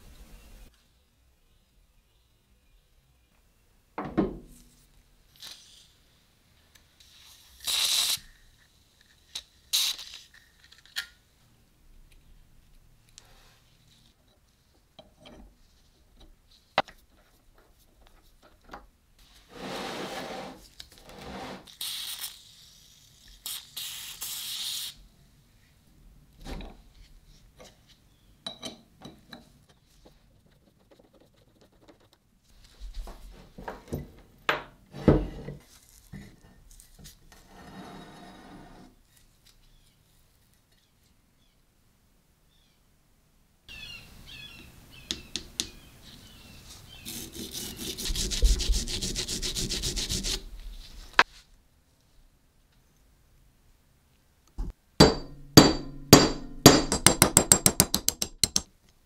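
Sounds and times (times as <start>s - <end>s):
rubbing strokes on metal: 46.9s - 50.5s.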